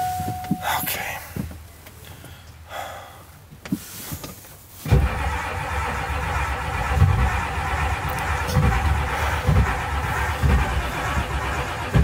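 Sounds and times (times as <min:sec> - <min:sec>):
diesel engine starting and running: 0:04.7 - 0:12.0.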